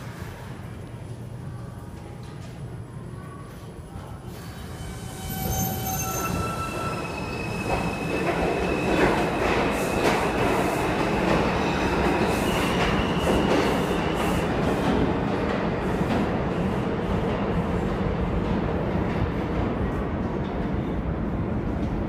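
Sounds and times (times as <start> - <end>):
subway train pulling out: 0.0 - 22.0
wheel squeal: 4.8 - 8.1.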